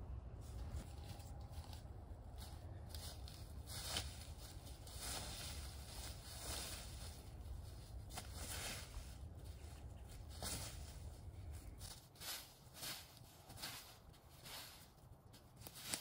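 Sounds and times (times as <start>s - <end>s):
low rumble: 0.0s - 11.9s
footsteps in dry leaves: 0.4s - 16.0s.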